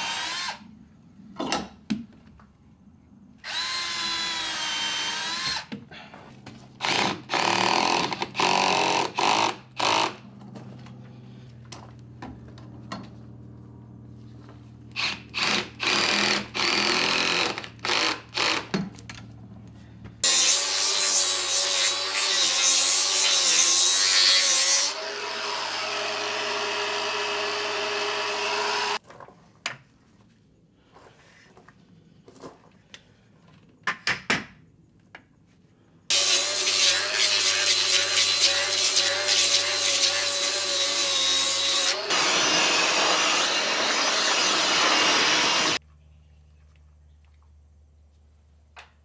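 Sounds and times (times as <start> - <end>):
angle grinder on wood: 20.2 - 29.0, 36.1 - 45.8
power tool running steadily: 24.9 - 29.0, 36.1 - 45.8.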